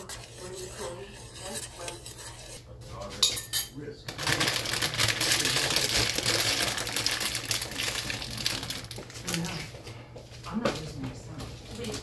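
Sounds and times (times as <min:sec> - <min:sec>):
plastic bag crinkling: 0:04.1 - 0:09.7.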